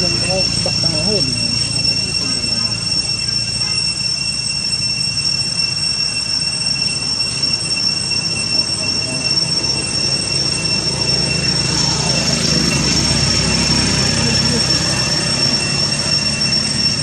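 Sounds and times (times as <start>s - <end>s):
cicadas droning: 0.0s - 17.0s.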